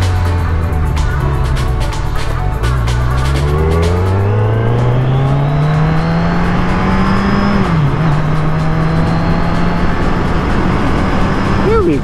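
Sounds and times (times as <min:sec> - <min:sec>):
motorcycle engine accelerating: 0:00.0 - 0:12.0.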